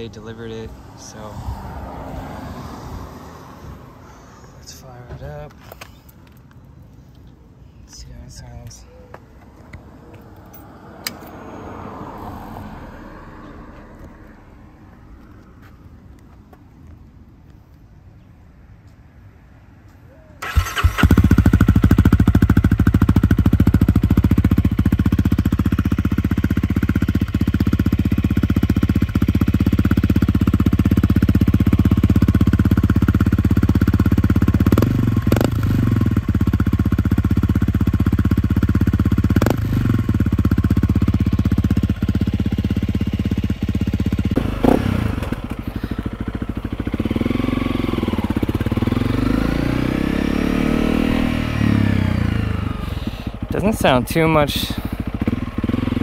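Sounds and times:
motorcycle engine idling and revving: 0.0 - 17.0, 20.2 - 56.0.

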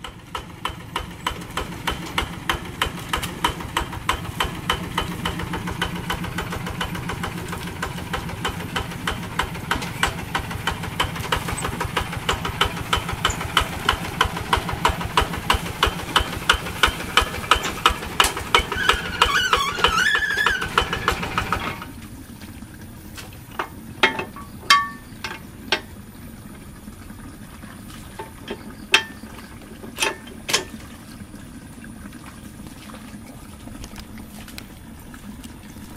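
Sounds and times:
diesel tractor engine knocking: 0.0 - 22.0.

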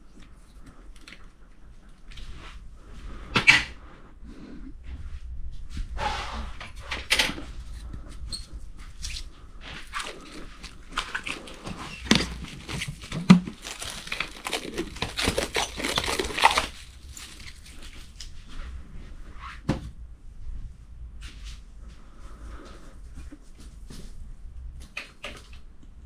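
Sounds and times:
stretch wrap crackling and squeaking: 8.2 - 18.4.

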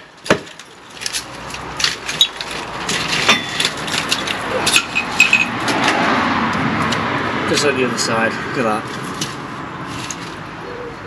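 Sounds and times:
bricks and rubble clinking: 0.0 - 6.0.

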